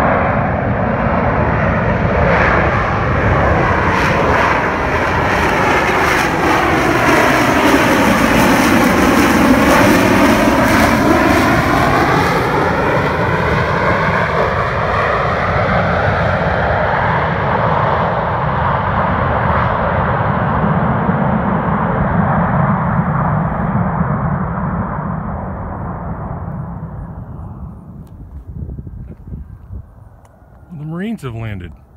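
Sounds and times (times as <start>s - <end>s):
jet engine roaring: 0.0s - 31.9s.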